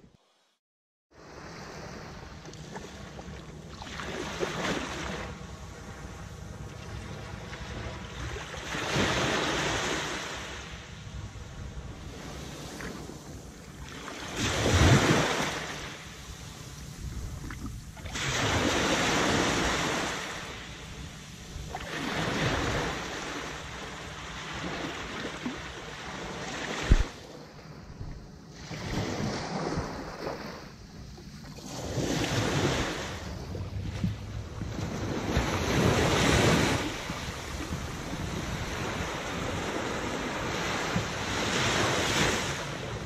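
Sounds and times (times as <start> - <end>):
wind rumbling on microphone: 6.3 - 25.6, 26.3 - 43.0
surf breaking on sand: 26.3 - 27.2.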